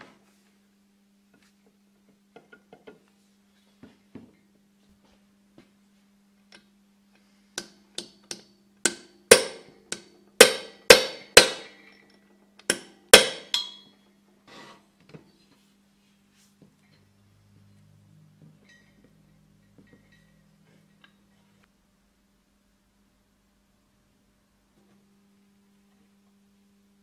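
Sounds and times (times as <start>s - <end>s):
hammer striking metal shaft: 7.6s - 12.0s, 12.7s - 14.0s.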